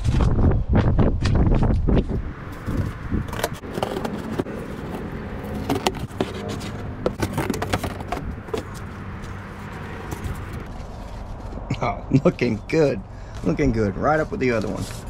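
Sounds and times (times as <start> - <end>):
cardboard scraping and rustling: 2.5 - 11.7.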